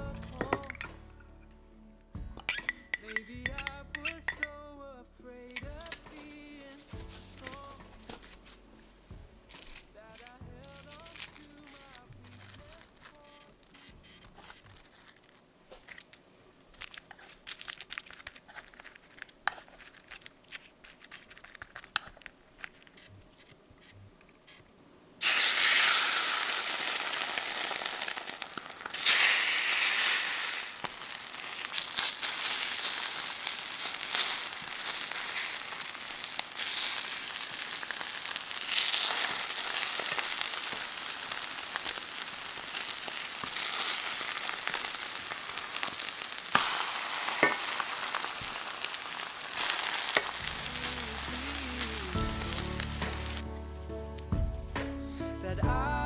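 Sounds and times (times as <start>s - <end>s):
seaweed sheets crinkling: 5.8s - 8.8s, 9.5s - 23.0s, 25.2s - 53.5s
oil sizzling in a pan: 25.2s - 53.8s.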